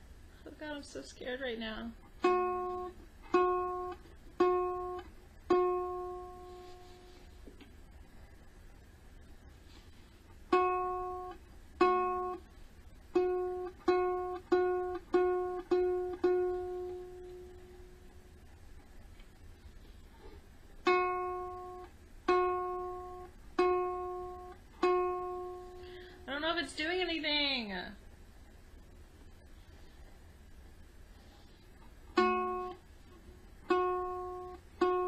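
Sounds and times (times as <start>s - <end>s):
ukulele string plucked: 2.2s - 7.2s, 10.5s - 12.4s, 13.1s - 18.3s, 20.8s - 25.8s, 32.1s - 32.8s, 33.7s - 35.0s.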